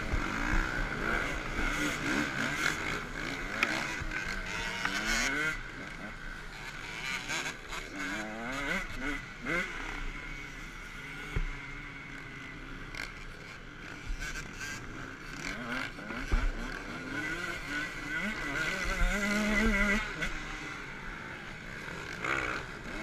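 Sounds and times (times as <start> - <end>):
motocross engine revving: 0.0 - 23.0.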